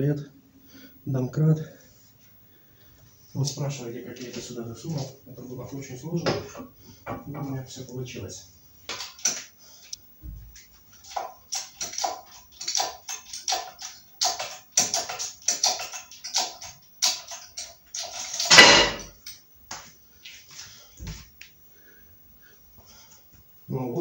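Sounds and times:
loud metallic bang with ringing: 18.5 - 19.0.

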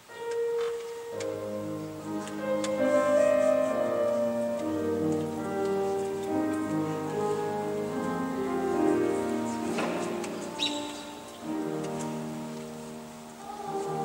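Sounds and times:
children's choir singing: 1.2 - 14.0.

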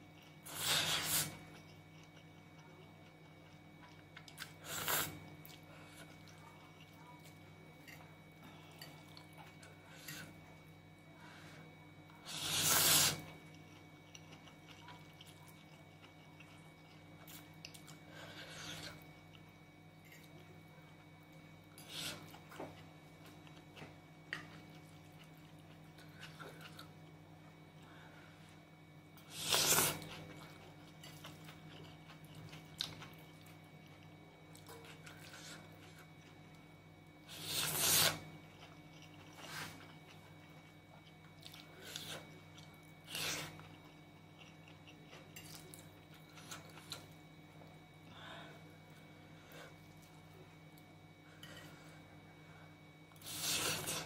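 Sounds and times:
faint steady hum: 0.0 - 54.0
chewing: 0.1 - 10.4, 12.3 - 21.0, 29.4 - 36.6, 37.3 - 47.2.

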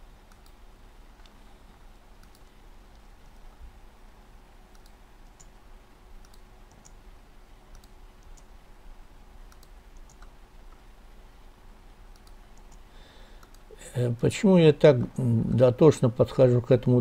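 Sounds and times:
faint steady hum: 0.0 - 17.0
mouse and keyboard clicks: 9.5 - 10.3.

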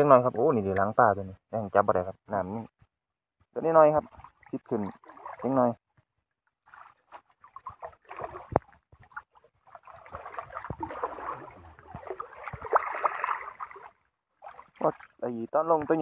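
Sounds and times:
water splashing and sloshing: 4.0 - 16.0
water slaps: 6.7 - 15.2.

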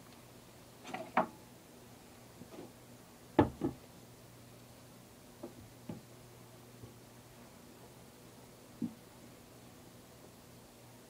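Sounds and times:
objects knocking on a work surface: 3.4 - 3.8.

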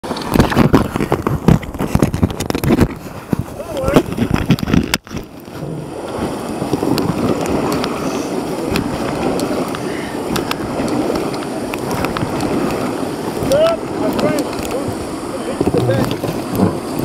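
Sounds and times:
river water rushing: 0.0 - 17.0.

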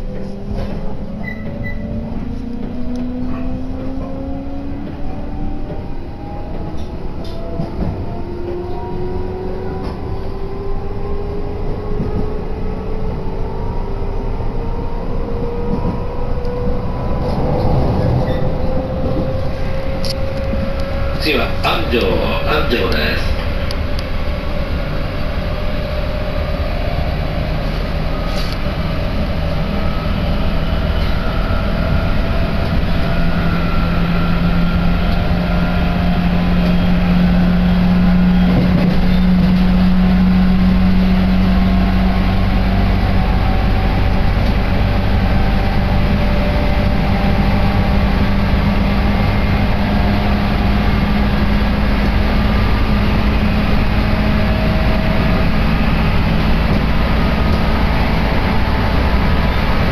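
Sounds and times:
train motor hum: 0.0 - 59.9
train wheels rumbling on rails: 0.0 - 59.9.

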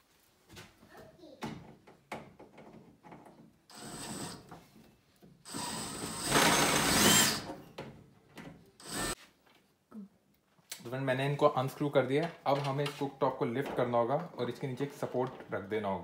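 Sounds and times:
cordless drill motor whine: 5.5 - 7.4, 8.8 - 9.2.

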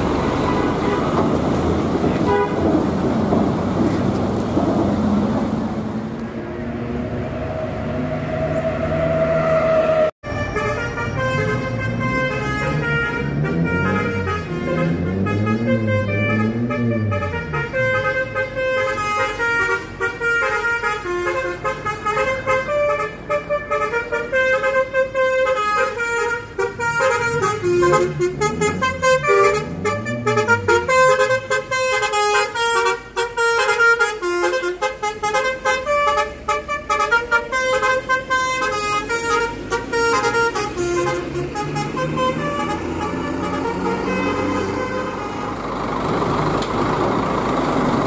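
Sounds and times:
diesel engine revving: 0.0 - 18.8, 26.4 - 32.7, 35.9 - 48.0
musical air horn melody: 8.8 - 45.5.

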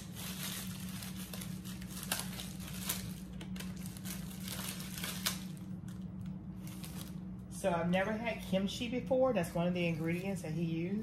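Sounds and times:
plastic bag crinkling: 0.0 - 7.5
steady low hum: 0.0 - 11.0.

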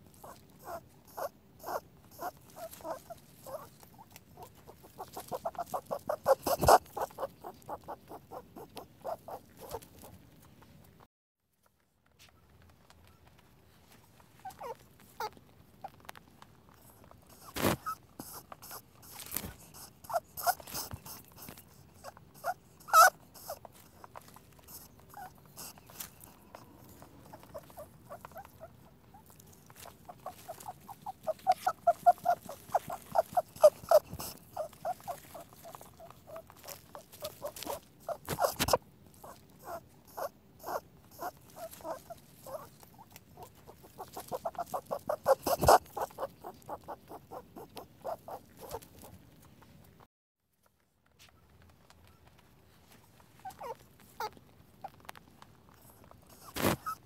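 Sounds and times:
rabbit chewing grass: 0.0 - 11.1, 12.1 - 50.1, 51.0 - 57.0.

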